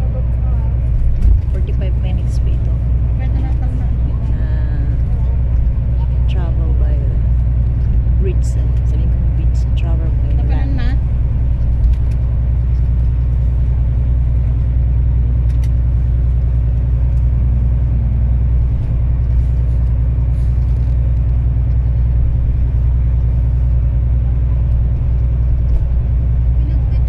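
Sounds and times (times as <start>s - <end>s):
vehicle engine and tyre rumble: 0.0s - 27.0s.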